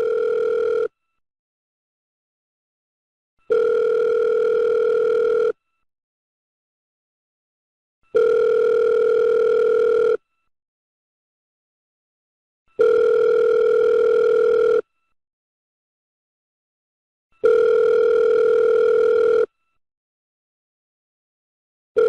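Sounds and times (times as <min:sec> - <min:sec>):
telephone ringback tone: 0:00.0 - 0:01.0, 0:03.5 - 0:05.6, 0:08.1 - 0:10.3, 0:12.8 - 0:15.0, 0:17.4 - 0:19.6.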